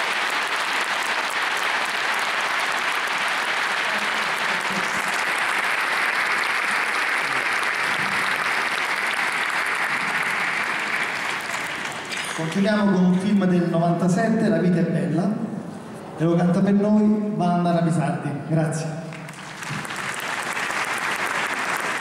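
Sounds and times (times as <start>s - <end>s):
audience applauding: 0.0s - 12.6s, 19.1s - 22.0s.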